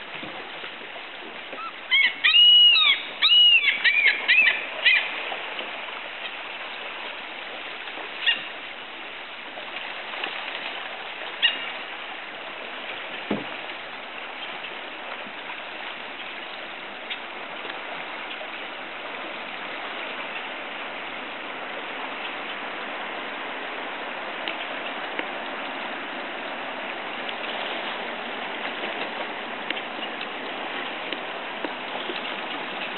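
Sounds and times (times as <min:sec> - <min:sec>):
creek water running over gravel: 0:00.0 - 0:32.9
faint clicks: 0:24.4 - 0:25.3.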